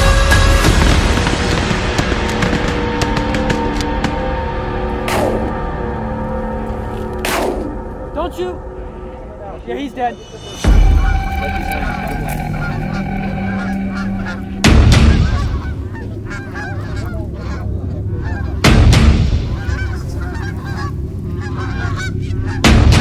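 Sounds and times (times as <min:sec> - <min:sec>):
geese honking: 0:10.2 - 0:23.0.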